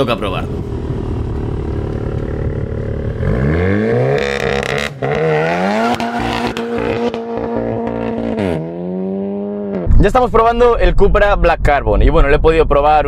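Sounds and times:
car engine accelerating: 0.0 - 10.1.

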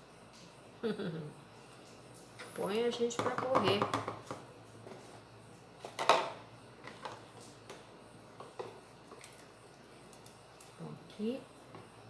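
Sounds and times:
plastic knocking on counter: 3.2 - 4.4.

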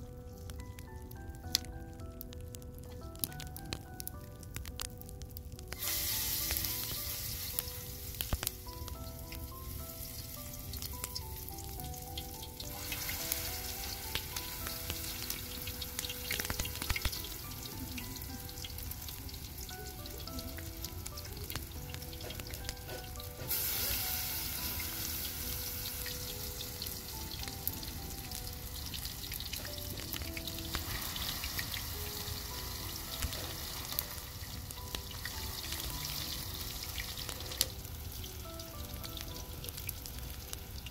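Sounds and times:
food sizzling in oil: 0.0 - 40.9
soft plucked background music: 0.0 - 40.9.

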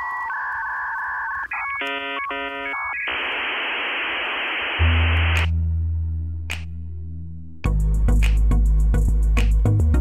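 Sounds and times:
electronic beeps and tones: 0.0 - 5.5
static hiss: 0.0 - 5.5
deep bass drone: 4.8 - 10.0.

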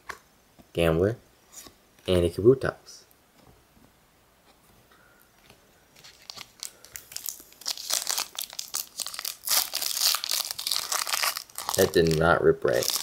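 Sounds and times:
foil wrapper crinkling: 6.0 - 13.0
foil ripping open: 6.1 - 13.0.

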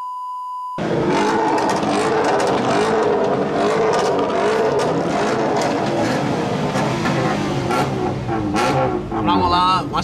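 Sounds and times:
car engine revving: 0.8 - 10.0.

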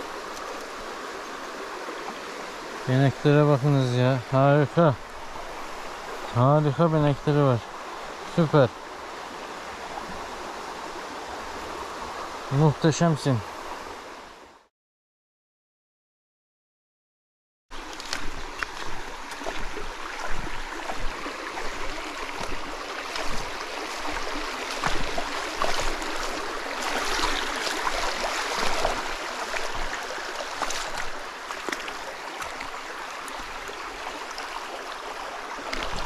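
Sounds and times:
stream water flowing: 0.0 - 14.7, 17.7 - 36.0.

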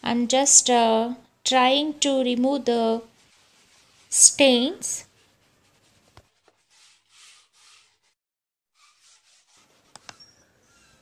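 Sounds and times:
wet cloth rubbing sink: 5.2 - 8.2, 8.8 - 11.0.

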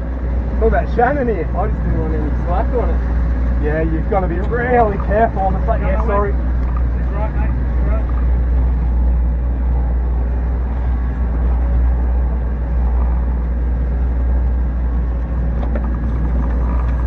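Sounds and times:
outboard motor rumbling: 0.0 - 17.0
water rushing past hull: 0.0 - 17.0.

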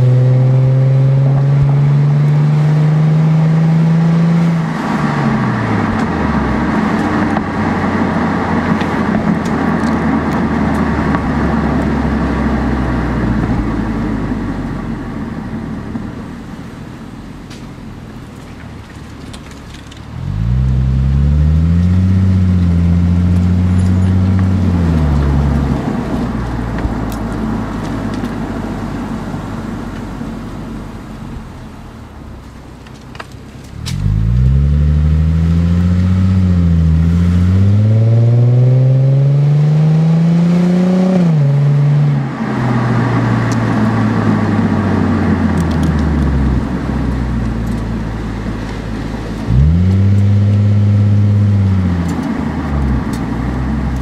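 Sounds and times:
road noise: 0.0 - 54.0
car exhaust engine note: 49.4 - 54.0.

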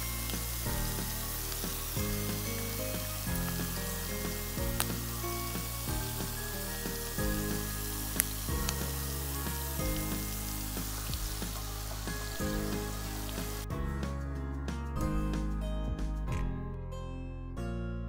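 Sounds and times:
chicken skins sizzling in oil: 0.0 - 13.7.

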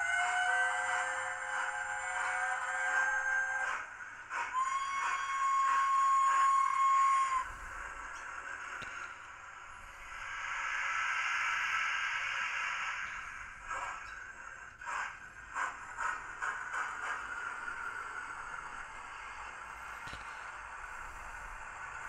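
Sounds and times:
steam locomotive whistle: 0.0 - 7.8
steam hiss: 0.0 - 22.0
short steam puffs: 3.6 - 22.0.

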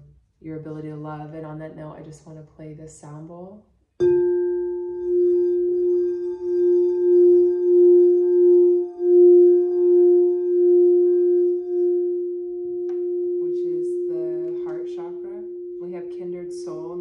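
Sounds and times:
singing bowl ringing: 4.0 - 17.0.

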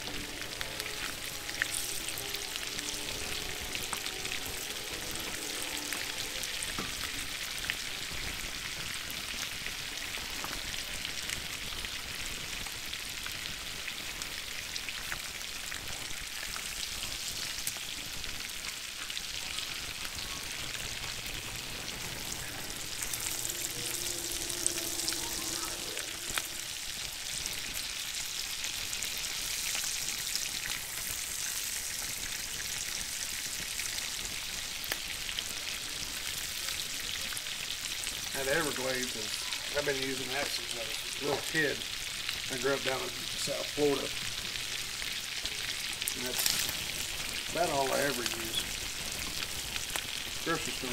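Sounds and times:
fish frying in butter: 0.0 - 50.9.

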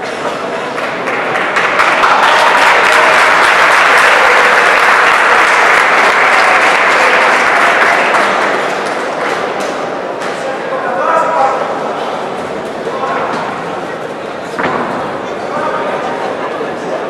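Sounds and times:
crowd applauding: 0.6 - 9.6.

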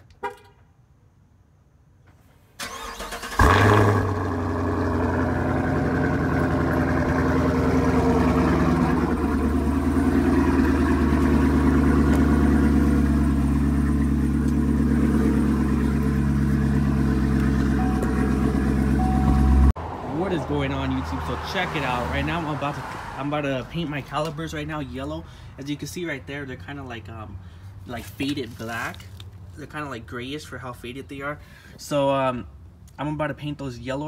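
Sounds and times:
car engine starting and idling: 2.1 - 22.6.

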